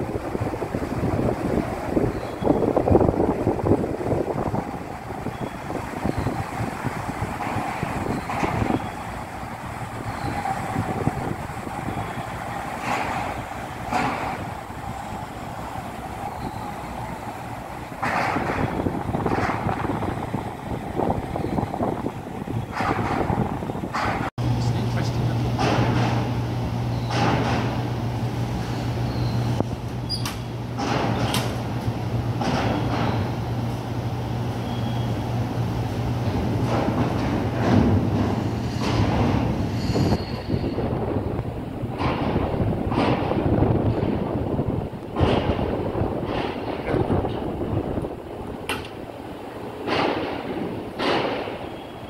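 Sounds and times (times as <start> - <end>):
propeller wash churning: 0.0 - 39.9
low rumble of ship engines: 0.0 - 52.0
wind buffeting microphone: 0.0 - 52.0.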